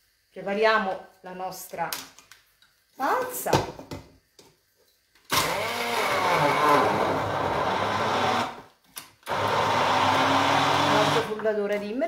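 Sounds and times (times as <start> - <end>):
immersion blender running: 5.3 - 8.7, 9.3 - 11.3.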